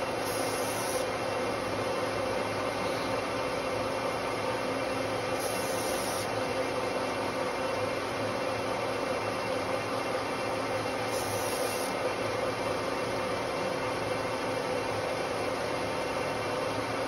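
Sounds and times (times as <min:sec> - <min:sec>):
metal lathe whirring: 0:00.0 - 0:07.4, 0:09.7 - 0:16.4.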